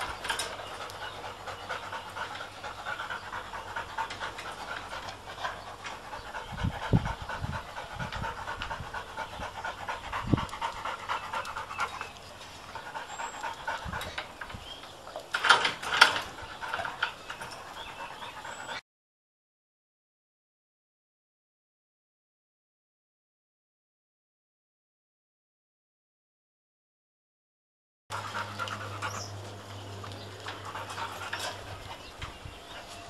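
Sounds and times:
dog panting: 0.0s - 18.8s, 28.1s - 33.0s.

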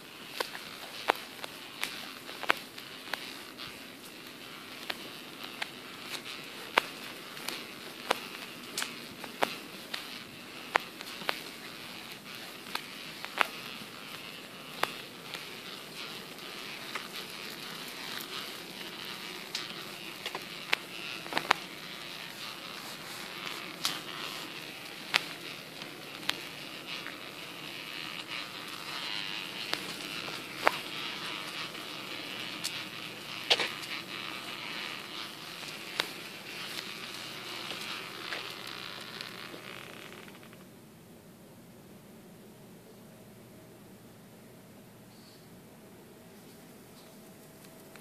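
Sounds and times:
pram wheels rolling on pavement: 0.0s - 40.6s
sharp clicks and ticks: 0.0s - 40.6s.

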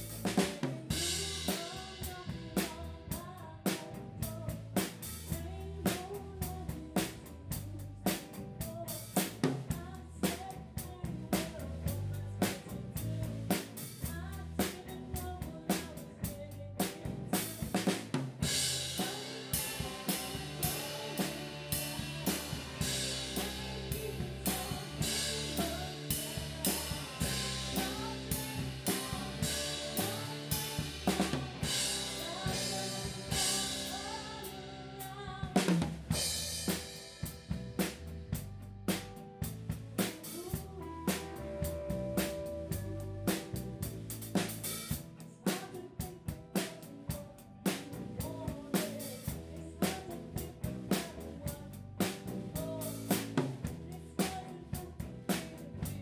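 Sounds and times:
bass and guitar: 0.0s - 56.0s
heavy cymbals: 18.4s - 35.0s.

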